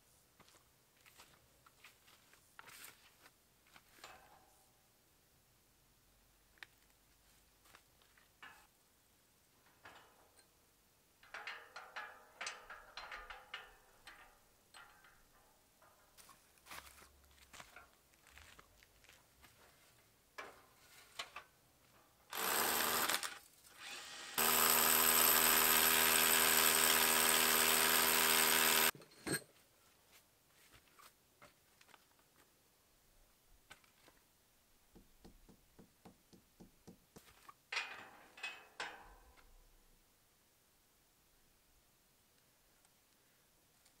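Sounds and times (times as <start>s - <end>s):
power drill drilling into stone: 22.3s - 28.9s.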